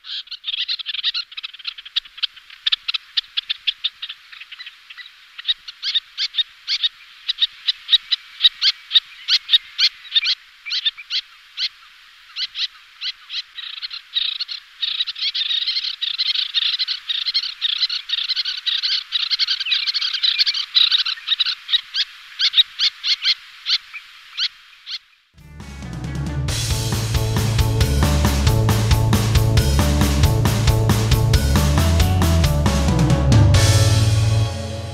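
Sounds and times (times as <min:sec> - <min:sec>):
terns calling: 0:00.0 - 0:25.4.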